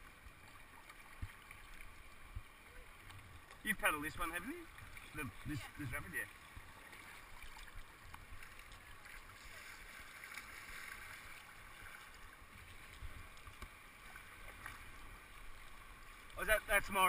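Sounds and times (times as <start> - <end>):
kayak paddle strokes: 0.0 - 17.0
water rushing past a hull: 0.0 - 17.0.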